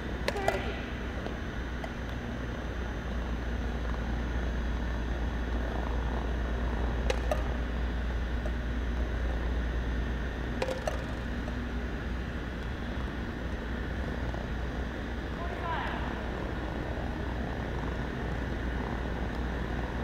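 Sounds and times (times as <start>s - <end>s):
steady low hum: 0.0s - 20.0s
golf balls clicking on wooden floor: 7.0s - 7.6s, 10.6s - 11.6s.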